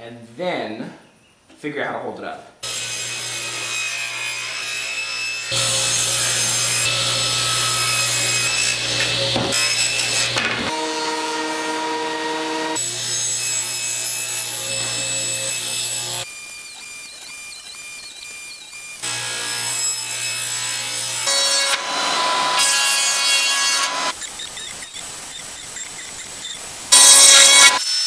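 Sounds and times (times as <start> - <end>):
saws cutting wood: 2.6 - 28.0
machine motor whining: 14.8 - 19.2.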